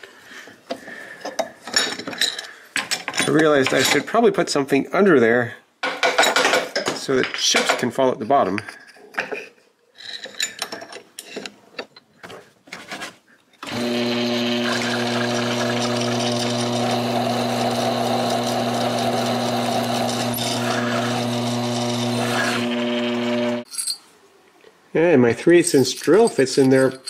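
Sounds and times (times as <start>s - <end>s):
spindle motor humming: 13.7s - 23.6s
reamer rasping through metal: 13.7s - 23.7s.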